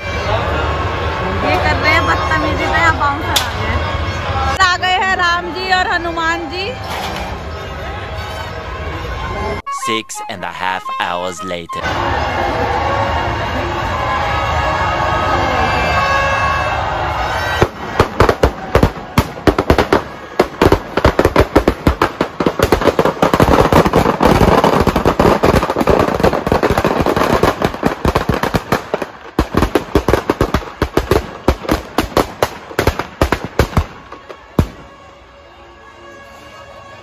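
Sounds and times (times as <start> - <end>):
firecrackers banging: 15.8 - 35.4.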